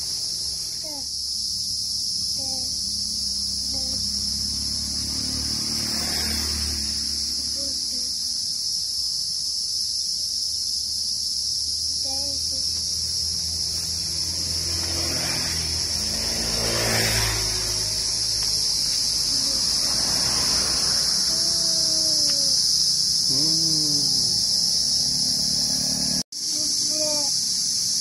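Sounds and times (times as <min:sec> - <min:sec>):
insects chorus: 0:00.0 - 0:28.0
vehicle passing: 0:01.6 - 0:08.3, 0:12.9 - 0:22.6, 0:23.2 - 0:26.2.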